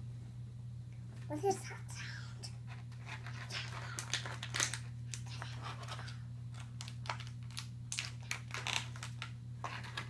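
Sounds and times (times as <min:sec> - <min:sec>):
steady low hum: 0:00.0 - 0:10.0
plastic packaging crackling: 0:03.3 - 0:10.0.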